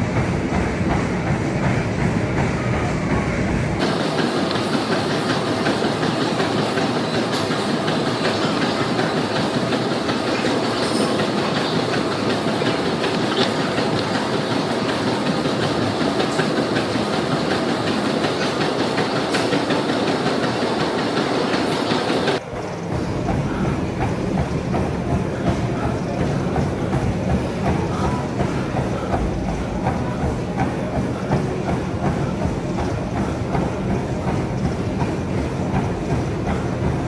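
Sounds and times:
treadmill belt and motor: 0.0s - 37.0s
footfalls on treadmill deck: 0.2s - 22.4s.

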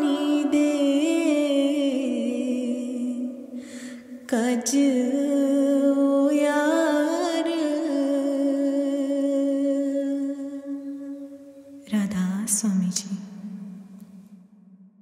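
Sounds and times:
person singing a long note: 0.0s - 10.8s.

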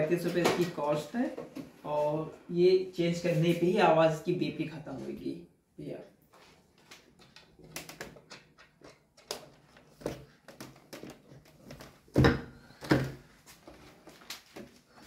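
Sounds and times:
plastic parts clicking and knocking: 6.8s - 13.3s.

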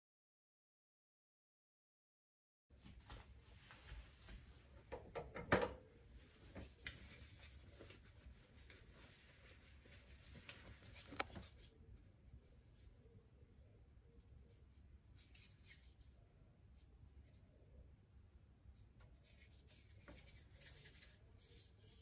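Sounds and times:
cloth rubbing: 6.2s - 11.5s.

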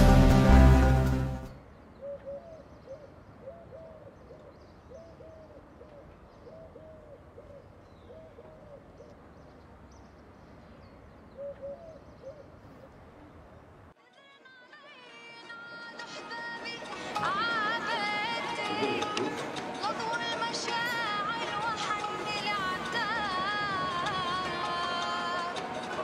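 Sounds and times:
dove cooing: 2.0s - 9.1s, 11.3s - 12.9s, 17.0s - 26.0s.

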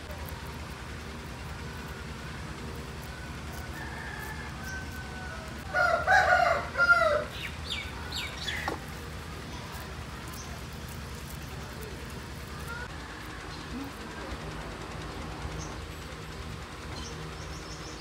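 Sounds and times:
rooster crowing: 3.0s - 7.8s, 12.9s - 13.7s.

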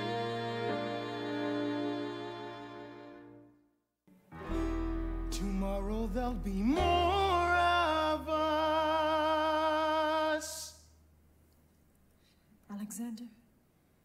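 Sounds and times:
solo voice singing: 5.3s - 10.8s.

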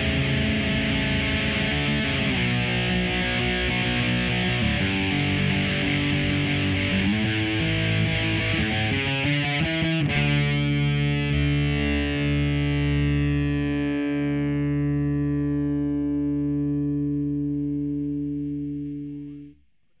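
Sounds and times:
punk rock band playing: 0.0s - 13.3s
distorted electric guitar chord ringing: 0.0s - 19.6s.

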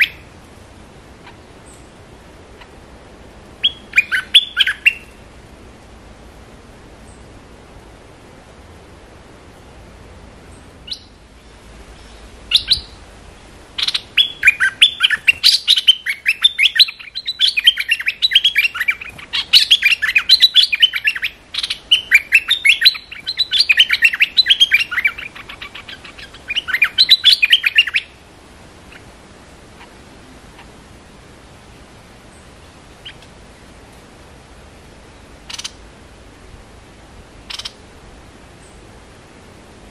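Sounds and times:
bird singing warbled notes: 3.6s - 5.2s, 13.8s - 28.2s.

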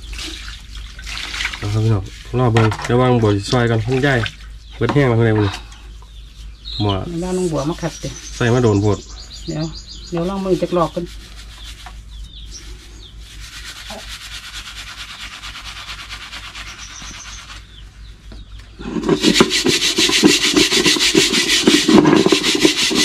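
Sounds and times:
scouring strokes on metal pot: 10.1s - 17.6s, 18.8s - 23.0s
scouring pad rubbing on soap: 10.2s - 17.7s, 18.8s - 23.0s.

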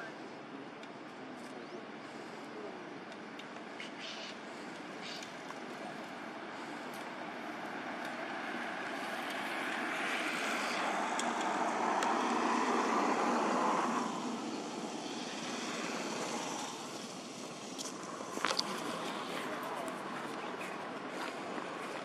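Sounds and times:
distant vehicle passing: 4.4s - 22.0s.

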